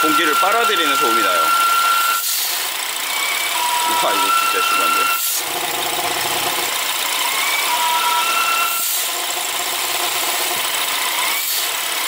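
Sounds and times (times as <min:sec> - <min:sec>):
car engine idling: 0:02.6 - 0:12.0
air whistle: 0:03.5 - 0:05.4, 0:07.4 - 0:09.0.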